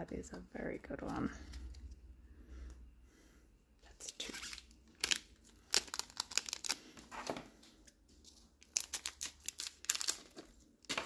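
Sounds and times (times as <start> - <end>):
foil packaging crinkling: 4.4 - 7.0, 8.3 - 11.0.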